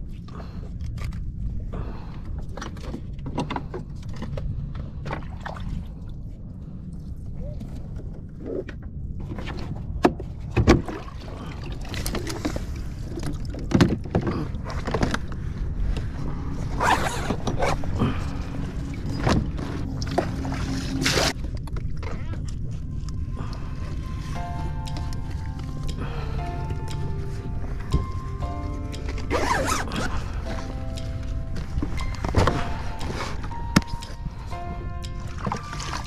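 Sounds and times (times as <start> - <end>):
low wind rumble: 0.0 - 36.0
bag rustling: 29.3 - 30.7.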